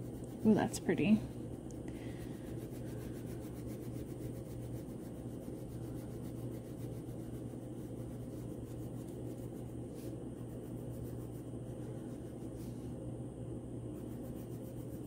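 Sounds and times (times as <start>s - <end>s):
steady low hum: 0.0s - 15.0s
crayon rubbing on paper: 2.2s - 12.6s, 13.9s - 15.0s.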